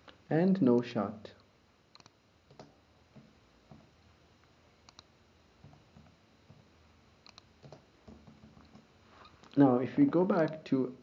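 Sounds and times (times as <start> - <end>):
keyboard and mouse clicks: 1.9 - 3.9, 4.8 - 6.6, 7.2 - 9.6.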